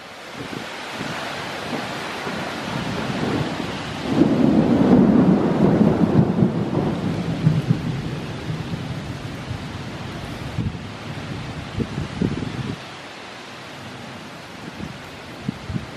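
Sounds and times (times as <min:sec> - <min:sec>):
rain hissing: 0:00.0 - 0:15.9
wind: 0:00.0 - 0:15.9
thunder rumbling: 0:01.0 - 0:12.8.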